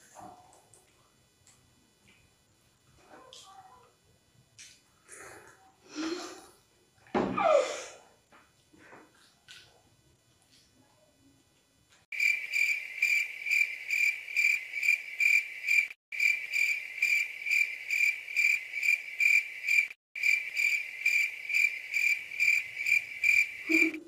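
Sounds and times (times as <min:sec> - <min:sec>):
cricket chirping: 0:12.1 - 0:24.0.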